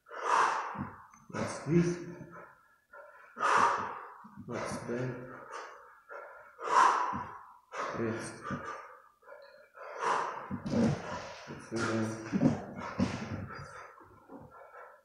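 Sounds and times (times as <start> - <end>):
man breathing hard: 0.0 - 15.0
man grunting: 4.5 - 5.3.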